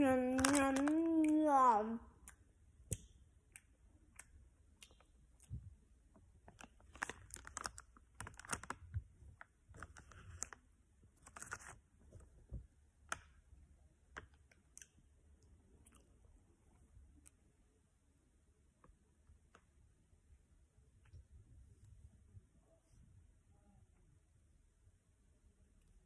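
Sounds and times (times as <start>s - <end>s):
plastic bag crinkling: 0.2s - 1.0s, 6.6s - 8.8s.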